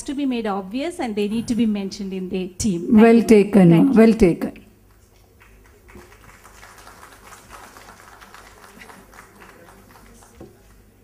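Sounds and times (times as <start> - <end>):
audience clapping: 4.8 - 11.0.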